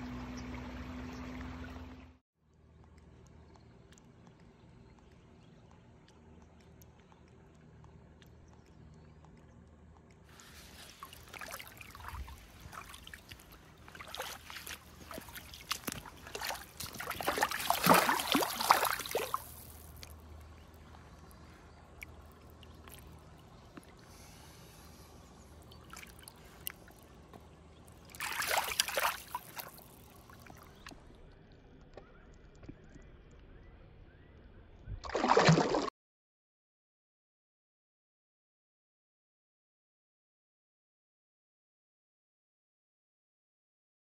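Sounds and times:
river water splashing: 0:10.4 - 0:25.1, 0:25.7 - 0:30.9, 0:35.0 - 0:35.9.

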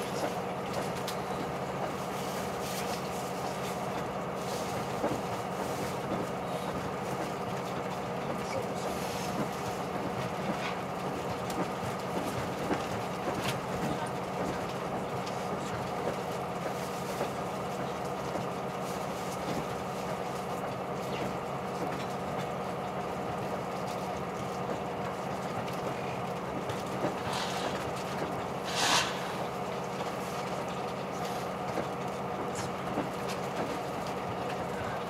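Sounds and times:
train engine drone: 0:25.6 - 0:33.2.

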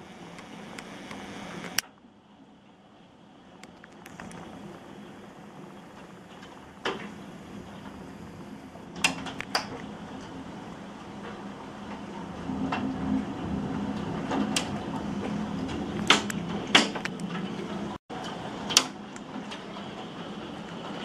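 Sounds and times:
rain hissing: 0:00.0 - 0:01.8, 0:03.2 - 0:21.0
low hum: 0:00.0 - 0:18.0
sharp knocks and clicks: 0:14.3 - 0:17.4.

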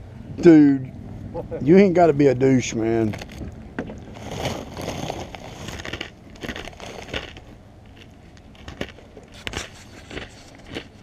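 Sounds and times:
pretzels crunching from snack bag: 0:04.1 - 0:11.0.

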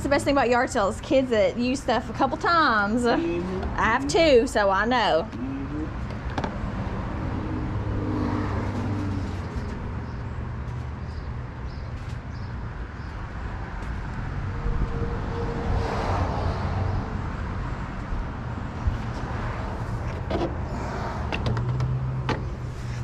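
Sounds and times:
car passing: 0:01.3 - 0:10.6, 0:13.2 - 0:23.0
low outdoor rumble: 0:12.5 - 0:23.0.

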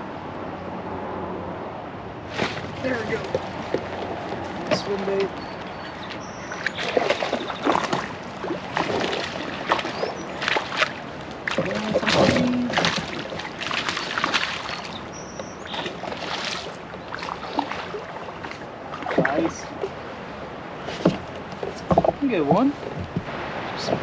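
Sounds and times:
water slapping against kayak hull: 0:02.3 - 0:24.0.

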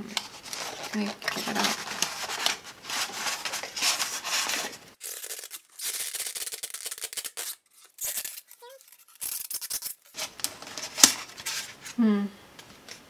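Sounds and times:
cardboard packaging rustling: 0:00.2 - 0:12.0.

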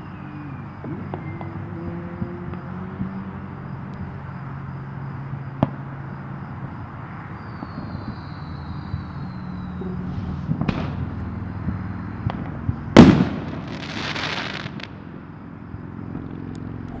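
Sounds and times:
steady low hum: 0:00.0 - 0:17.0
distant fireworks bangs: 0:06.7 - 0:09.2, 0:10.0 - 0:15.0
fireworks hiss: 0:13.0 - 0:14.9.

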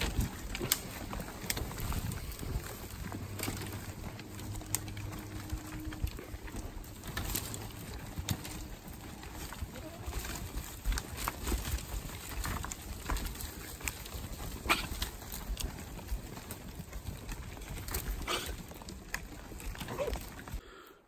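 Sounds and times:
twigs snapping: 0:00.0 - 0:09.1
foliage rustling: 0:00.0 - 0:20.8.

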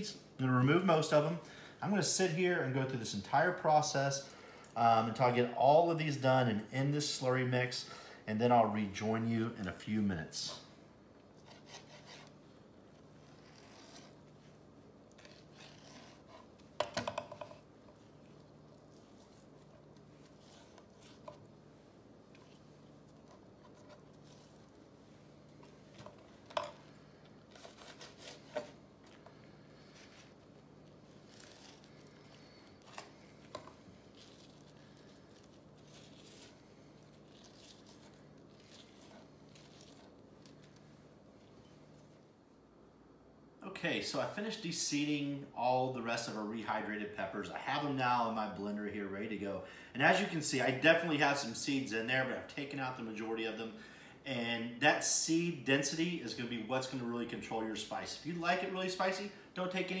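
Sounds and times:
low steady hum: 0:00.0 - 1:00.0
soft tearing and squishing: 0:10.5 - 0:16.8, 0:17.5 - 0:42.4
hands and knife scraping peppers: 0:11.4 - 0:12.4, 0:13.2 - 0:14.5, 0:15.1 - 0:21.6, 0:27.5 - 0:40.8.

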